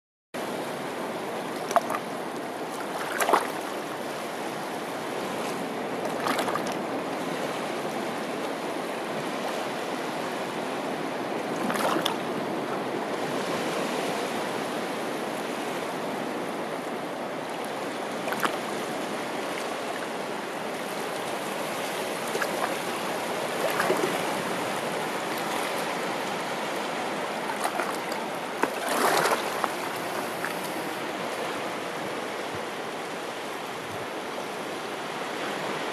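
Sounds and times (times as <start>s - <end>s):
waves lapping over rocks: 0.4s - 35.9s
water splash: 2.8s - 3.7s, 6.1s - 6.8s, 23.5s - 25.9s, 27.4s - 30.8s.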